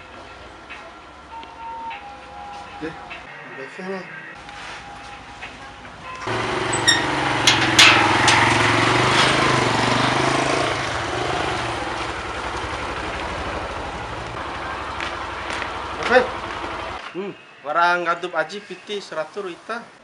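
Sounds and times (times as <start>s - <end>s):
motorcycle engine running: 6.2s - 17.0s
metal gate clanking and rattling: 6.3s - 10.8s.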